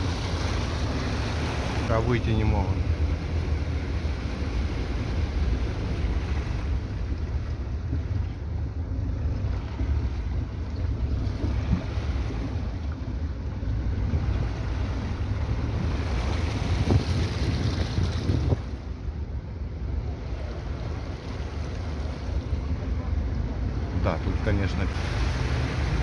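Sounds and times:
low engine and road rumble: 0.0 - 26.0
water splashing against car: 0.0 - 26.0.

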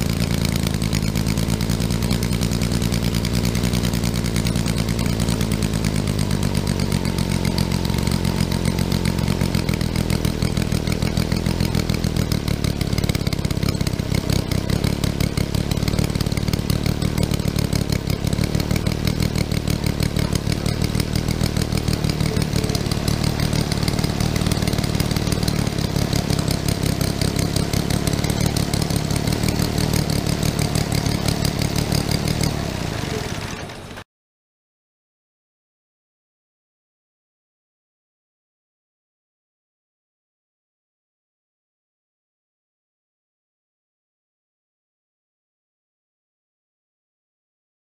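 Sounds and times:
model engine running: 0.0 - 34.0.

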